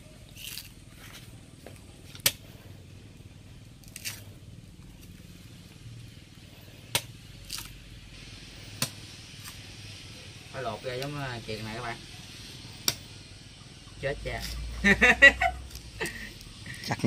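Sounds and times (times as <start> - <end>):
machete chopping coconut husk: 2.0 - 2.5, 3.8 - 4.2, 6.8 - 7.8, 8.7 - 9.6, 12.8 - 13.1, 14.3 - 14.6.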